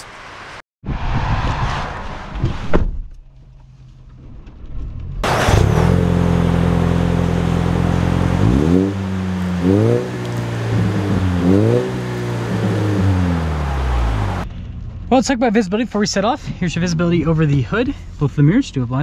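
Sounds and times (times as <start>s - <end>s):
truck engine running and revving: 5.2s - 14.9s.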